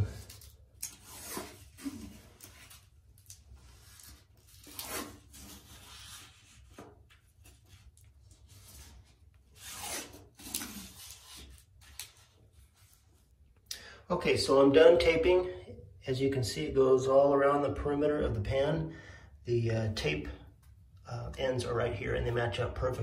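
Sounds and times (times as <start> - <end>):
tape rubbing swishes: 0.3 - 13.3.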